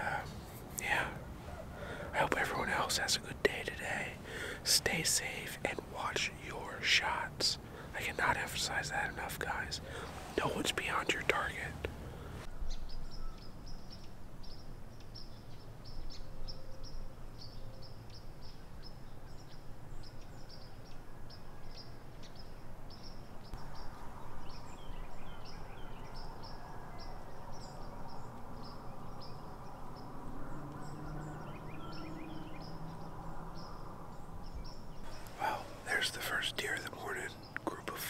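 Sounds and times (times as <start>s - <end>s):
songbird chip notes: 0.0s - 11.9s, 27.7s - 38.0s
outdoor hush: 0.0s - 38.0s
bird falling calls: 35.1s - 37.6s.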